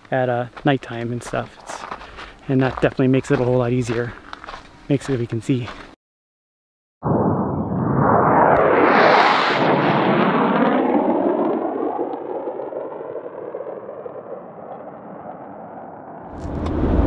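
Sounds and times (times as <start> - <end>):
jet roar overhead: 7.0 - 17.0.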